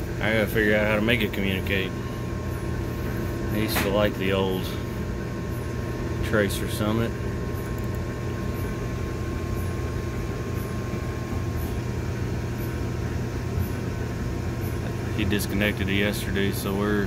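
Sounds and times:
mechanical equipment humming: 0:00.0 - 0:17.0.

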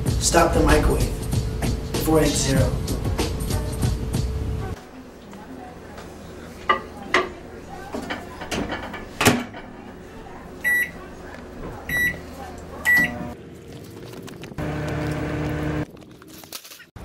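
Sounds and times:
keypad beeps: 0:10.7 - 0:10.9, 0:11.9 - 0:12.2, 0:12.9 - 0:13.2
microwave oven humming: 0:11.8 - 0:13.4, 0:14.6 - 0:15.8.

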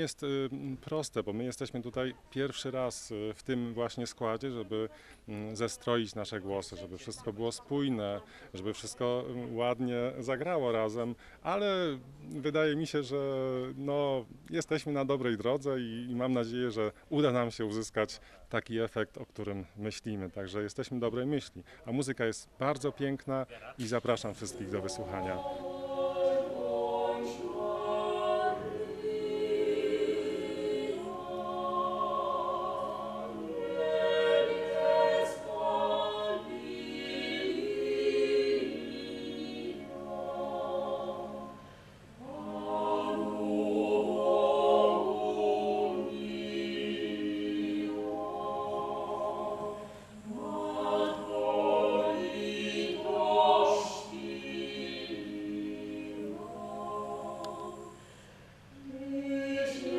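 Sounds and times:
mixed choir singing: 0:24.0 - 0:58.2, 0:58.8 - 0:59.9.

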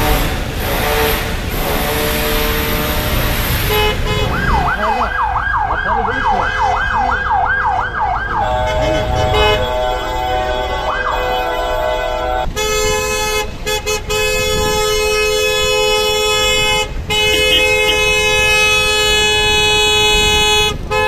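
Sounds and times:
city traffic noise: 0:00.0 - 0:21.0
siren yelping: 0:04.5 - 0:12.5
steady held tones: 0:07.9 - 0:12.6.

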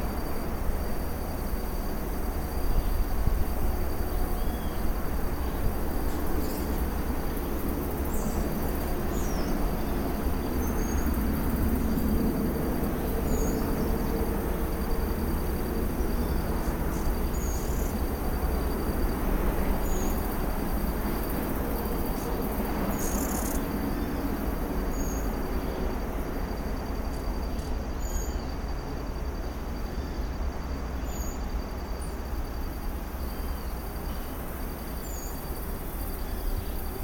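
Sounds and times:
insect trilling: 0:12.7 - 0:18.8, 0:21.6 - 0:24.1.

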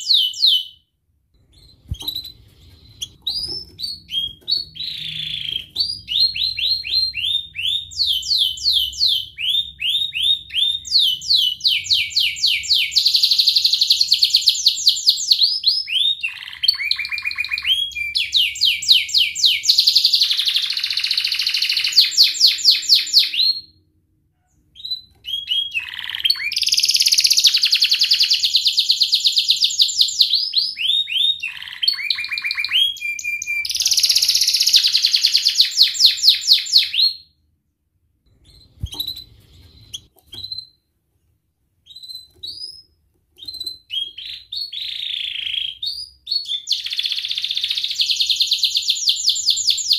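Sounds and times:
canary singing trills: 0:01.5 - 0:23.7, 0:24.4 - 0:37.2, 0:38.4 - 0:40.8.

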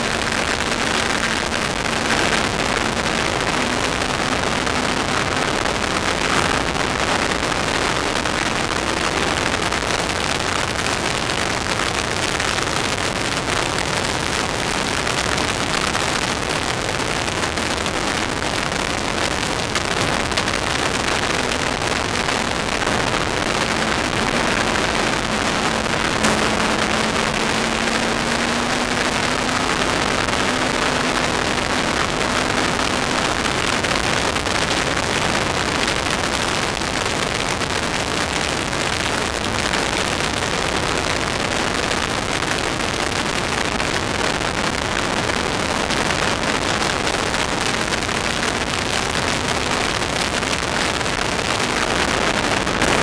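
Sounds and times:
car engine running: 0:00.0 - 0:09.6, 0:17.0 - 0:36.6
wind rushing over microphone: 0:15.0 - 0:53.0.

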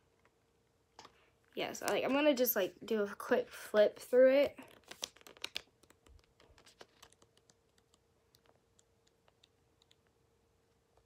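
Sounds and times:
paper pages flipping: 0:04.6 - 0:10.0.

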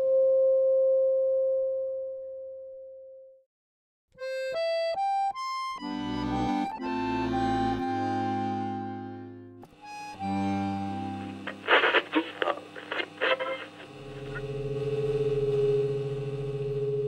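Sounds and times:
accordion playing: 0:04.2 - 0:13.8.

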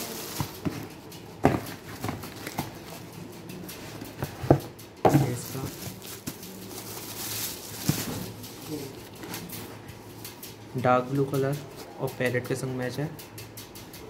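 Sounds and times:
cardboard boxes being handled: 0:00.0 - 0:03.0, 0:04.2 - 0:09.4
plastic wrapping crinkling: 0:00.0 - 0:11.9.

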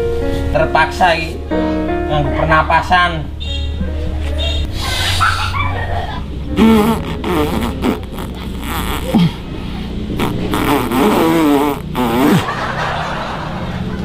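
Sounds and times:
lips buzzing and sputtering: 0:04.6 - 0:12.6.

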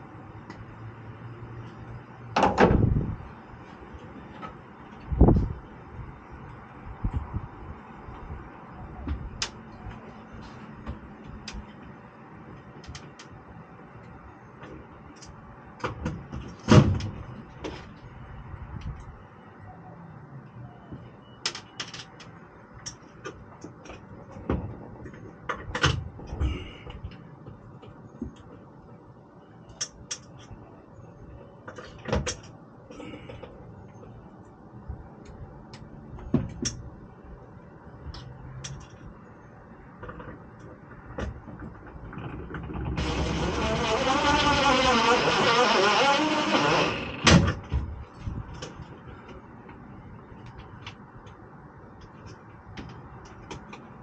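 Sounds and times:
cordless drill driving screw: 0:43.0 - 0:47.3.

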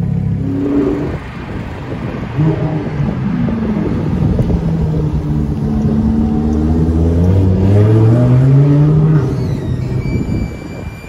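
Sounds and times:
car engine accelerating past: 0:02.4 - 0:09.4.

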